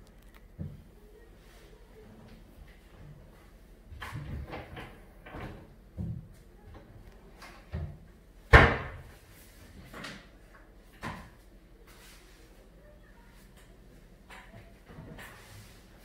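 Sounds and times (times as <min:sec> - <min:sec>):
cabinet doors knocking shut: 0:07.8 - 0:09.1.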